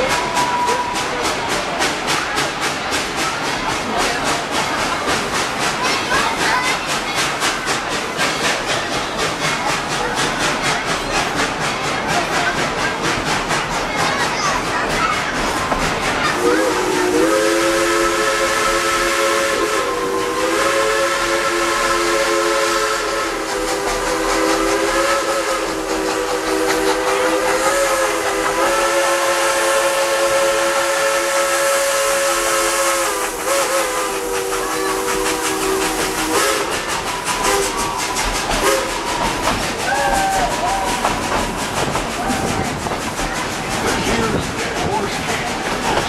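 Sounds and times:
train running noise: 0.0s - 46.0s
steam locomotive chime whistle: 16.4s - 41.0s.

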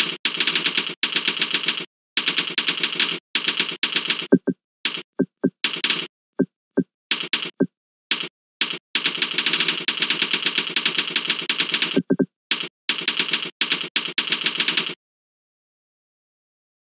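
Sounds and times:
fast keyboard typing: 0.0s - 6.1s, 7.1s - 15.0s.

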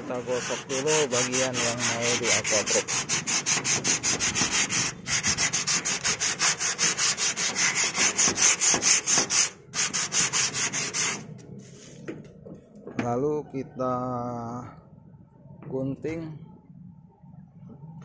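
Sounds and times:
sandpaper scraping metal roof: 0.0s - 12.0s.

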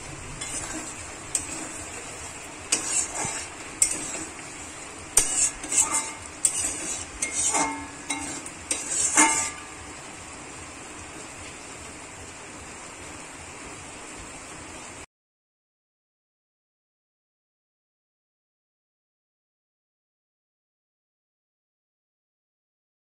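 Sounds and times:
metal spatula scraping a pan: 0.0s - 10.0s.

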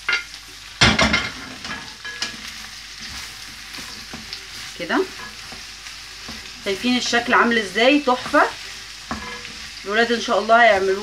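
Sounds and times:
food sizzling in hot oil: 0.0s - 11.0s
wooden spoon knocking pan: 5.2s - 9.5s.

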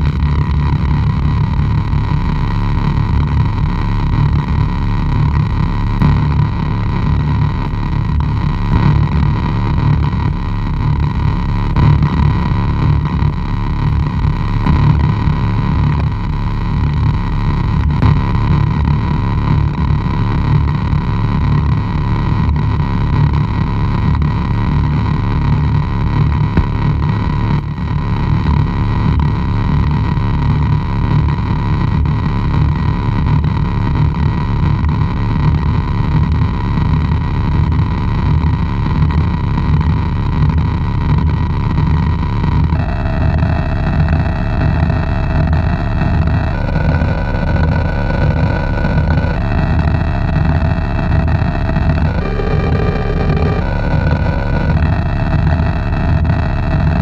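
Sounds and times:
fluttering low rumble: 0.0s - 57.0s
mid-pitched whine: 0.0s - 57.0s.

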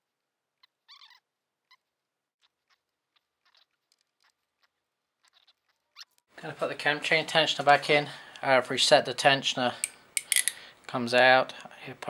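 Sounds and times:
torque wrench clicking: 9.8s - 10.6s.

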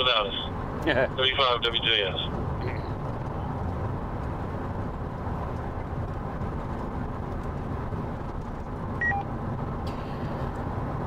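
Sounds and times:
road and engine noise in cabin: 0.0s - 11.0s.

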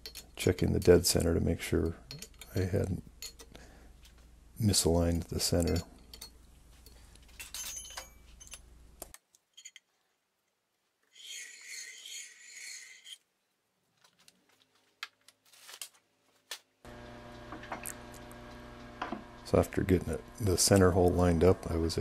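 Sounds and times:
lathe chuck whirring: 16.9s - 22.0s.

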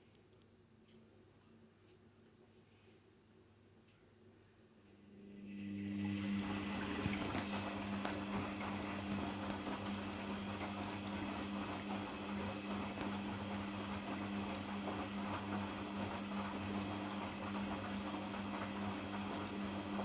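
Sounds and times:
washing machine motor hum: 4.7s - 20.0s
water sloshing in drum: 5.8s - 19.9s.

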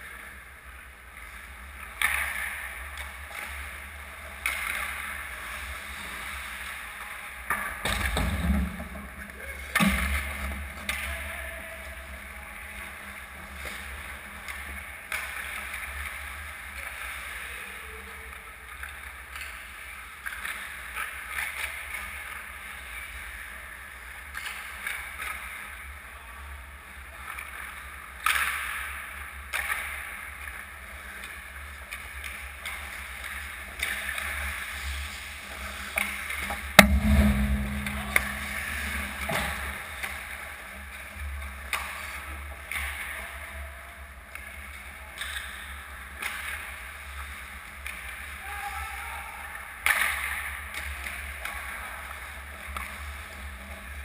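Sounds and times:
low rumble: 36.8s - 40.5s.

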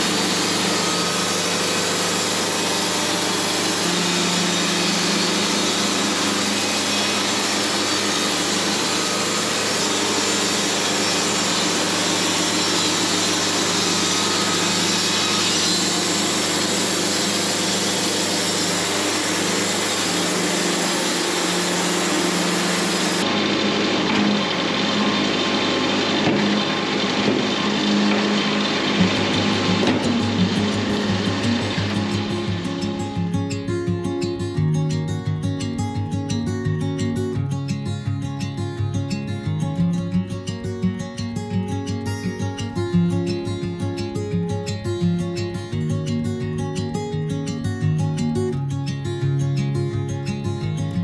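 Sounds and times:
machine motor humming: 0.0s - 33.1s.

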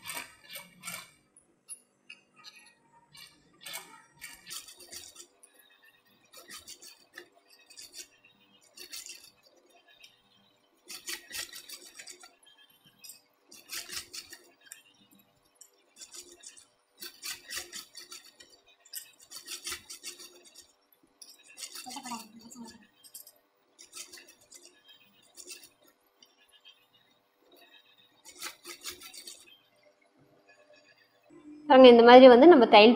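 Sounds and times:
sewing machine stitching: 0.0s - 1.2s, 2.4s - 5.4s, 6.0s - 9.8s, 10.8s - 14.8s, 15.9s - 25.9s, 28.2s - 29.6s
faint hum: 29.6s - 32.9s.

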